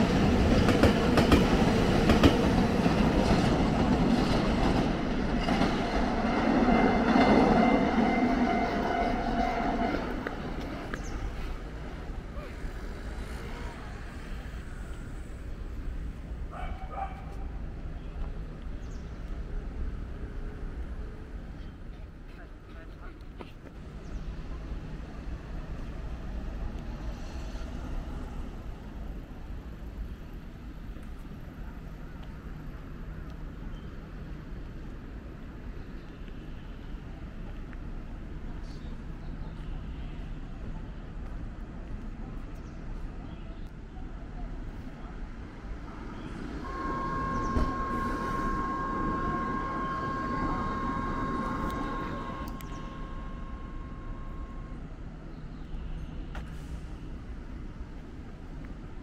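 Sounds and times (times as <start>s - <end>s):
road traffic hum: 0.0s - 59.0s
train low rumble: 0.0s - 59.0s
steady high tone: 46.4s - 54.8s.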